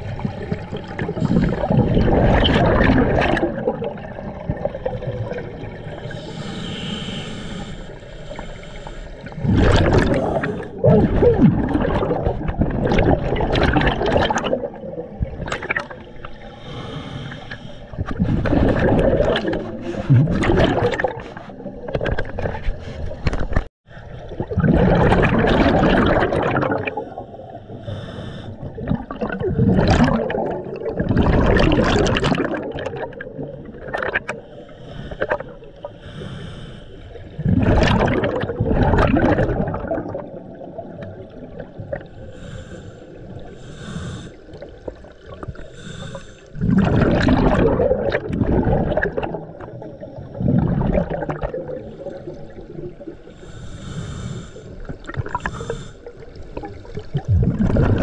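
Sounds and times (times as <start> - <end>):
gurgling exhaled bubbles: 0.0 - 7.7, 9.1 - 36.0, 37.1 - 58.0
hissing regulator inhalations: 5.9 - 9.3, 16.4 - 18.0, 27.0 - 28.7, 34.4 - 37.2, 42.2 - 44.7, 45.5 - 46.6, 53.3 - 56.2.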